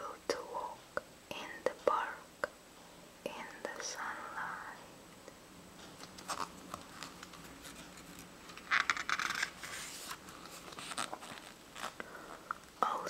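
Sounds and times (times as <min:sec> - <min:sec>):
page turning rustle: 0:05.9 - 0:12.0.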